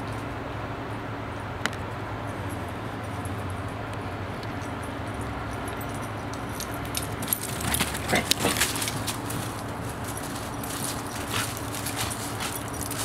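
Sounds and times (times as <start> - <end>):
low background hum: 0.0 - 13.0
metal dog tags jingling: 4.5 - 13.0.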